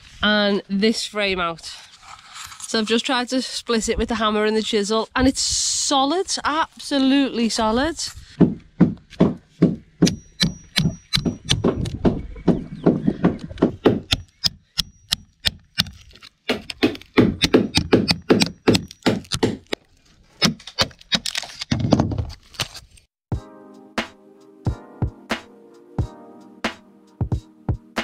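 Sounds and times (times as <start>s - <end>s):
hammer striking chisel: 8.4s - 11.8s, 13.8s - 19.8s
wood cracking and splintering: 15.7s - 22.8s.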